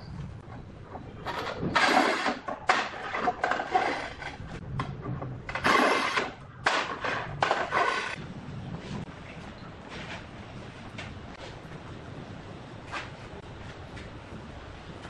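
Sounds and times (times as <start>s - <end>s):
tile cutter scraping across tile: 1.3s - 4.4s, 5.5s - 6.4s, 7.0s - 8.2s.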